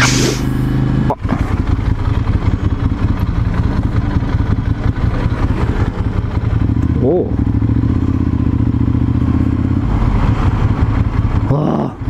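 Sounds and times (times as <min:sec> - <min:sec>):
motorcycle engine rumbling: 0:00.0 - 0:12.0.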